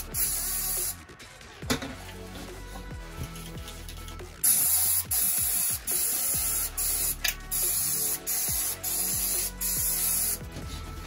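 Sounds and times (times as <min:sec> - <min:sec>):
aerosol spray hissing: 0:00.0 - 0:01.0, 0:04.4 - 0:10.4.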